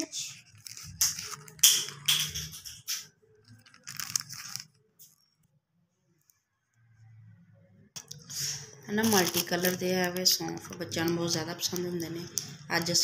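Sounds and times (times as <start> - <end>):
paper and plastic rustling: 0.2 - 5.2, 8.4 - 13.0.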